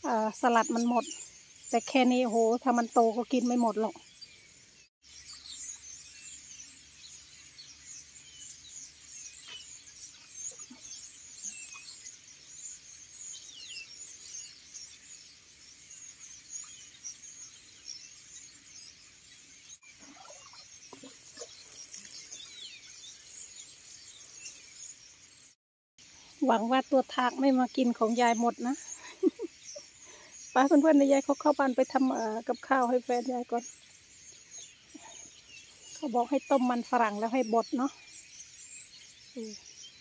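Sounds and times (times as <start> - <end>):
songbirds chirping: 0.0 - 40.0
water sprinkling onto soil: 11.0 - 15.3, 20.1 - 25.6.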